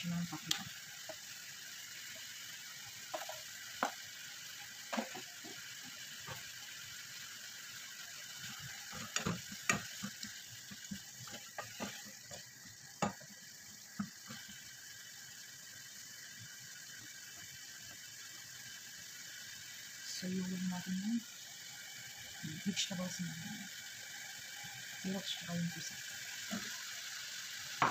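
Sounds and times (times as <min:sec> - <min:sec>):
food sizzling: 0:00.0 - 0:27.9
spoon knocking and scraping pan: 0:03.0 - 0:04.1, 0:04.8 - 0:06.5, 0:08.4 - 0:14.4.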